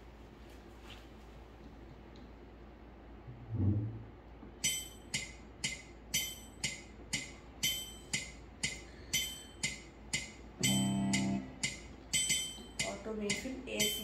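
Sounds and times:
metronome ticking: 4.6s - 14.0s
accented metronome chime: 10.6s - 14.0s.

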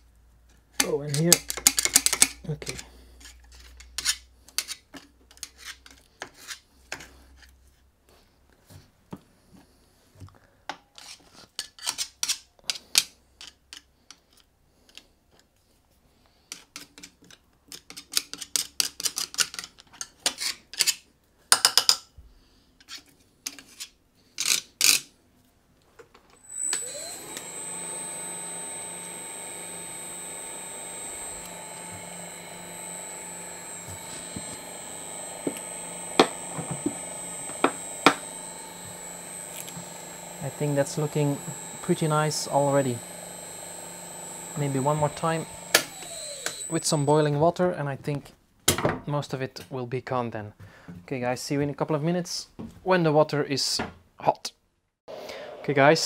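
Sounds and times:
tools scraping metal cutters: 0.8s - 7.6s, 10.9s - 15.0s, 26.4s - 47.2s
shredder motor whining: 26.4s - 47.2s.

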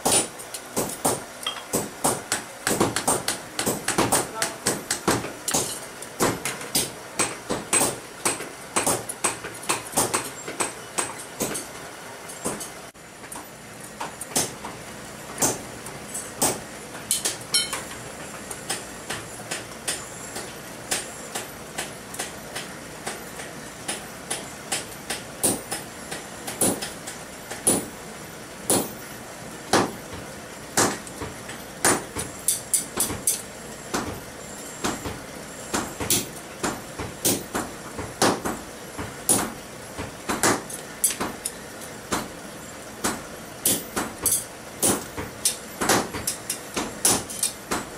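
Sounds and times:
hammer striking steel punch: 0.0s - 11.7s, 23.9s - 27.0s, 27.6s - 27.9s, 28.7s - 29.0s, 30.8s - 31.0s, 34.8s - 41.4s, 43.0s - 47.9s.

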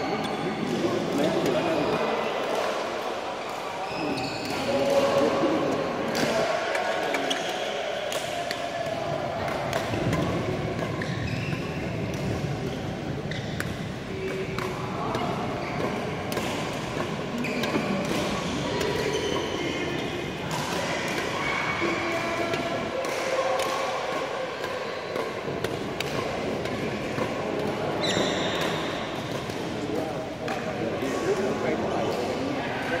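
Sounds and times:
rackets striking shuttlecock: 9.4s - 31.5s.

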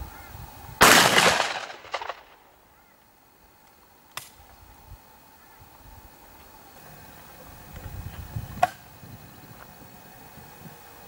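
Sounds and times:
shotgun shot: 0.8s - 2.4s.

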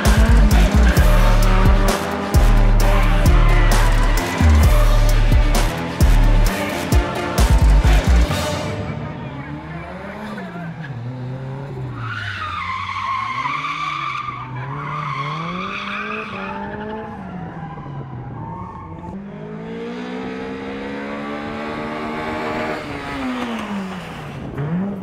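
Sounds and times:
car engine revving hard: 0.0s - 8.4s, 19.2s - 25.0s.

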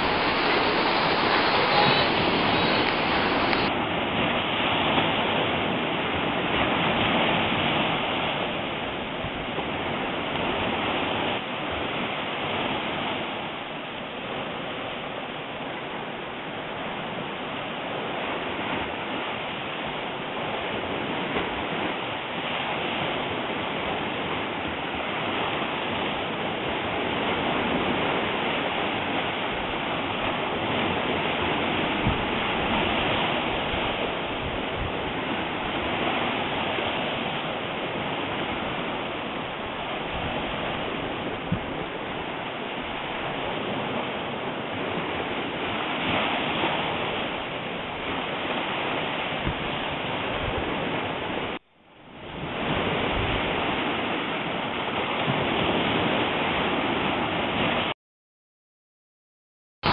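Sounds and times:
steady rushing noise: 0.0s - 3.9s
faint clicks: 2.7s - 3.7s.

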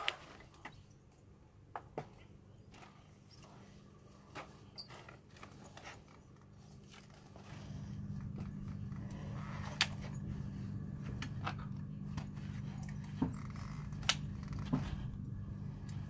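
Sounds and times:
low hum: 6.4s - 16.0s.

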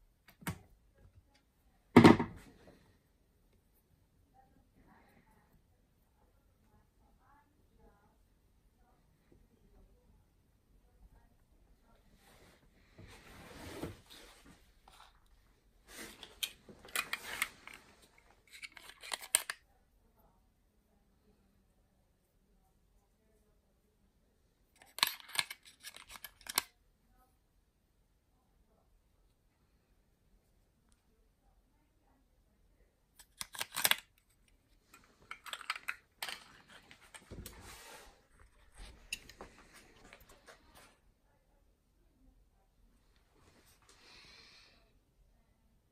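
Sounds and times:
tools clicking and clinking: 18.4s - 19.6s, 24.8s - 26.7s, 33.2s - 34.0s, 34.9s - 37.3s
plastic case rustle: 34.8s - 40.6s.

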